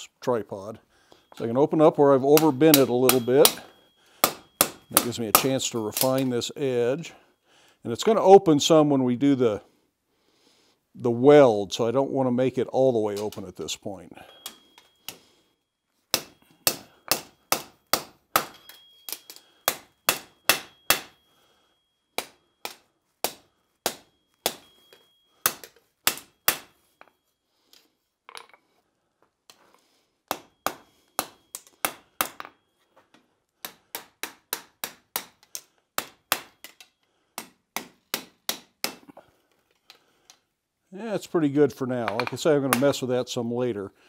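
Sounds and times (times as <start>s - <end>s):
anvil ringing: 1.2s - 6.4s, 14.2s - 15.2s, 16.2s - 22.5s, 23.9s - 27.2s
hammer striking hot steel: 2.3s - 6.3s, 16.1s - 21.2s, 22.2s - 27.1s, 30.3s - 32.4s.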